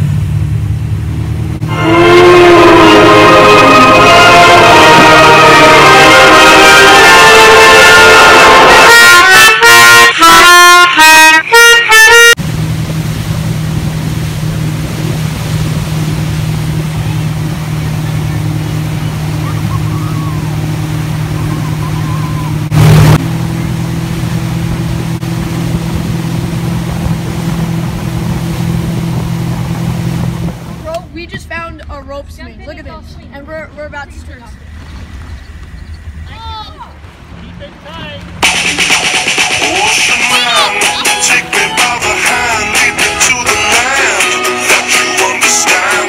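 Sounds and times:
motorboat engine drone: 0.0s - 31.0s, 36.9s - 46.0s
water noise: 0.0s - 46.0s
wind noise: 12.5s - 23.8s, 24.6s - 37.4s
music with sharp notes: 38.4s - 46.0s.

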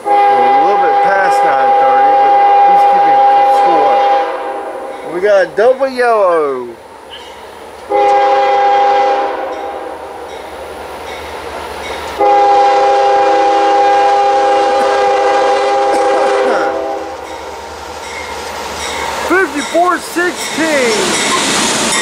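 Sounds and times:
locomotive air horn blasts: 0.0s - 4.9s, 7.9s - 9.9s, 12.2s - 17.2s
low train rumble: 0.0s - 22.0s.

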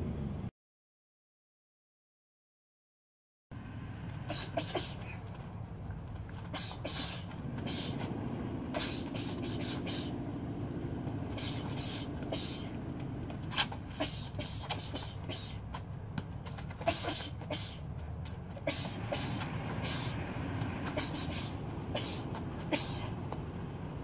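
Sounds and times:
low traffic rumble: 0.0s - 0.5s, 3.5s - 24.0s
shoes tapping on concrete: 4.0s - 23.6s
sharp hissing exhalations: 4.3s - 5.1s, 6.5s - 8.1s, 8.7s - 10.2s, 11.3s - 12.8s, 18.7s - 20.2s, 20.9s - 23.2s.

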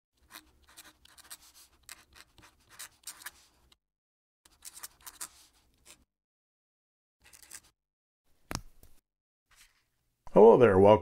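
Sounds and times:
pen nib scratching paper: 0.2s - 3.7s, 4.5s - 6.1s.

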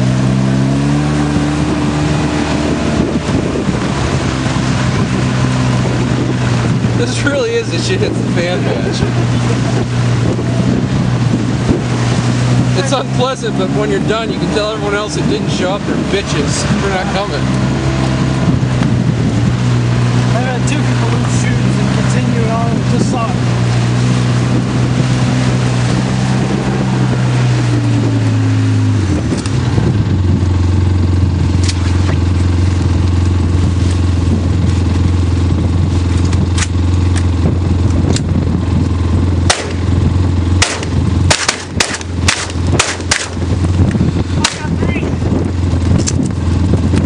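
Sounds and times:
vehicle engine running: 0.0s - 47.0s
shotgun shots: 39.5s - 39.8s, 40.6s - 43.4s.

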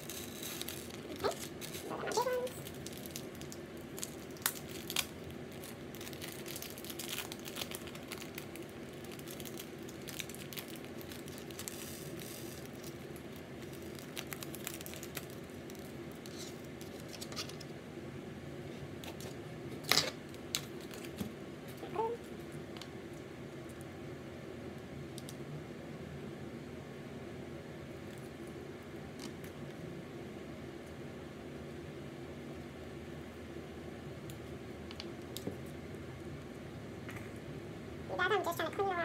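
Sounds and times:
plastic bag crinkling: 0.0s - 17.6s
steady low hum: 0.0s - 39.0s.

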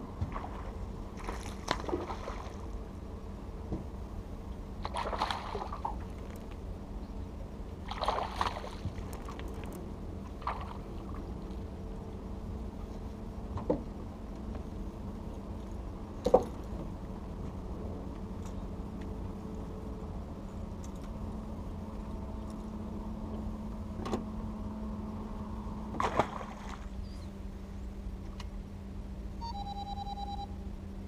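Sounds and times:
steady low hum: 0.0s - 31.0s
fish splashing at water surface: 4.8s - 6.0s, 7.9s - 9.4s, 26.0s - 26.9s.

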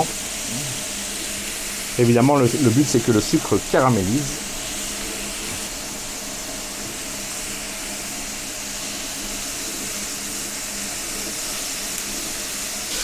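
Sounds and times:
food sizzling on griddle: 0.0s - 13.0s.

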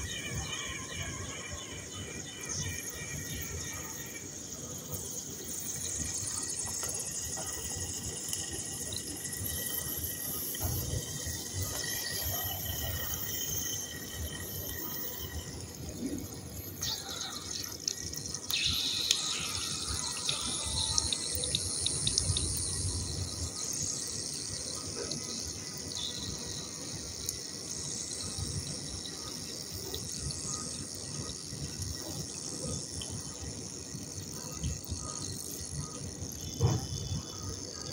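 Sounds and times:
clay fizzing in water: 1.7s - 37.9s.

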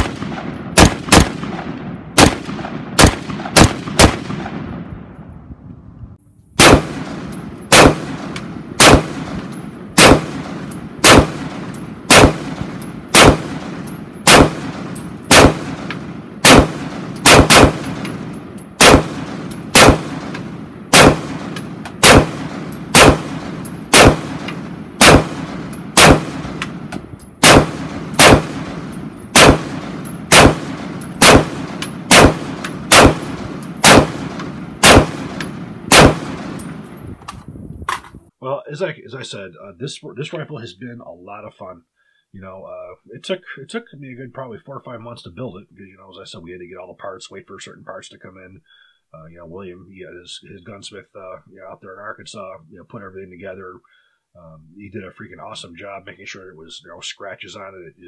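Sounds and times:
rifle single shots with echo: 0.0s - 5.3s, 6.6s - 37.0s.

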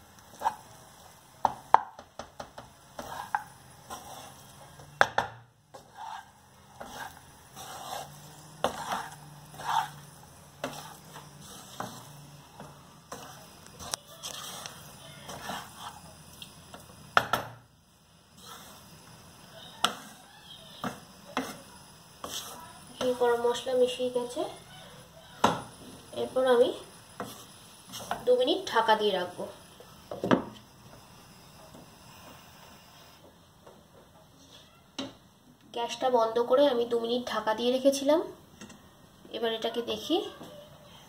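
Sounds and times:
wooden spatula scraping a pan: 0.2s - 1.7s, 2.4s - 5.0s, 5.6s - 16.9s, 18.3s - 30.7s.

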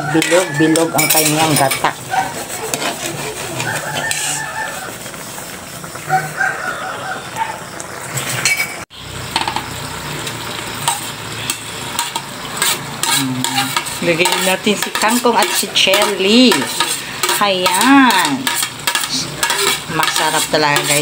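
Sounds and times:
metal spoon stirring sauce in wok: 0.0s - 5.2s, 10.8s - 21.0s
chicken calls: 2.0s - 7.9s.

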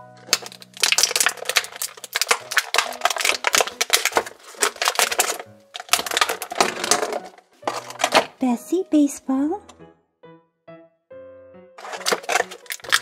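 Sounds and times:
plastic bag crinkling: 0.2s - 8.4s, 11.8s - 13.0s.

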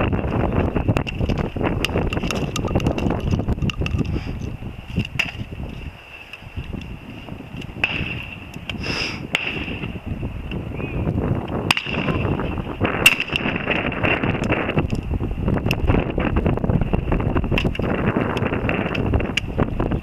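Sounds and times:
wind rumble on microphone: 0.0s - 20.0s
shotgun shots: 9.3s - 9.8s, 13.0s - 13.6s.

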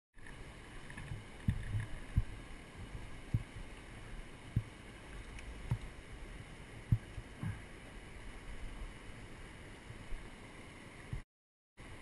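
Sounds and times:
river water rushing: 0.2s - 11.1s
dull low thumps: 1.1s - 3.7s.

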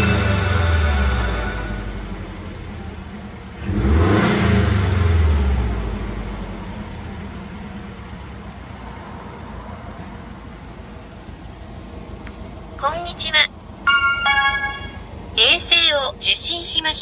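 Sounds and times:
car engine revving then idling: 0.0s - 12.7s.

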